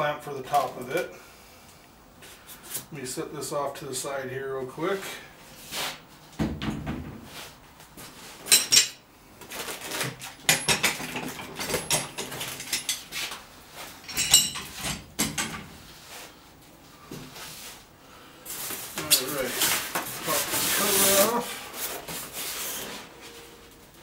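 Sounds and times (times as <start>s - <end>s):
metal clamps clanking: 14.0s - 15.7s.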